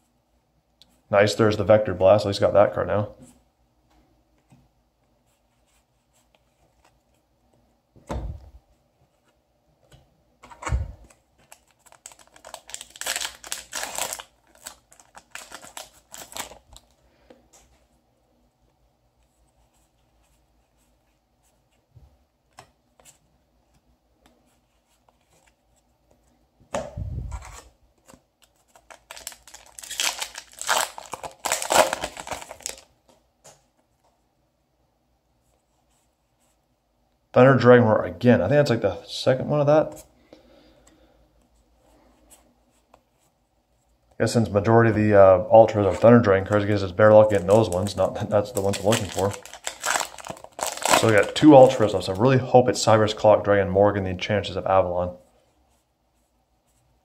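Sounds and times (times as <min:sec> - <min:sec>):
foil packs tearing and crinkling: 0:11.5 - 0:16.8, 0:28.8 - 0:32.9, 0:46.6 - 0:52.0.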